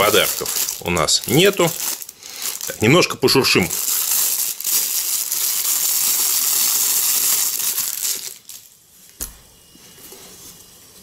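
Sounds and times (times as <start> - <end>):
plastic bag crinkling: 0.0 - 8.8.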